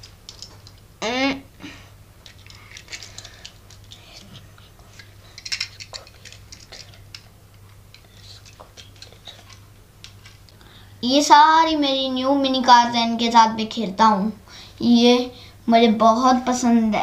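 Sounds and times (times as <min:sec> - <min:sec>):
toy cars clicking together: 0:00.0 - 0:00.8, 0:02.2 - 0:04.3, 0:05.0 - 0:07.3, 0:07.9 - 0:10.4
low steady hum: 0:00.0 - 0:17.0.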